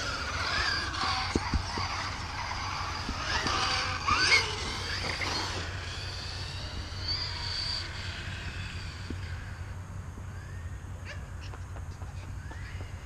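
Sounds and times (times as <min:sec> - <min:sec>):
tyre noise on pavement: 0:00.0 - 0:06.4, 0:11.2 - 0:13.0
electric motor whine: 0:00.0 - 0:13.0.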